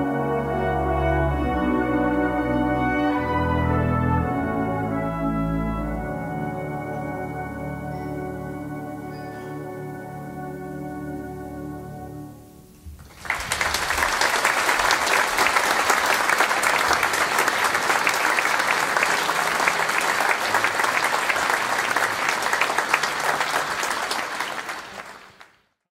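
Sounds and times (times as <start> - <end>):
music chord: 0.0 - 12.8
audience applauding: 13.0 - 25.8.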